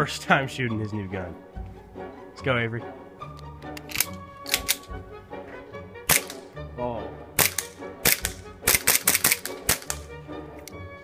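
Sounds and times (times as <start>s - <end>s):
background music: 0.0s - 11.0s
airsoft pistol shots: 6.1s - 6.5s, 7.4s - 10.1s.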